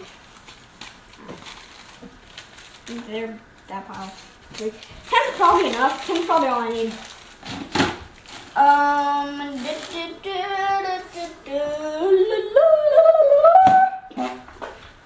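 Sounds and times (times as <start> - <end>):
young person singing wordlessly: 8.5 - 14.5.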